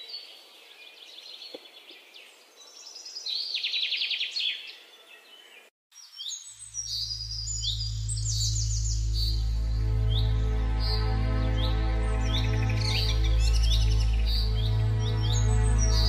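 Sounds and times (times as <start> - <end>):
songbirds chirping: 0.0 - 16.0
bird fast trill: 6.4 - 11.1
music with low drone: 6.8 - 16.0.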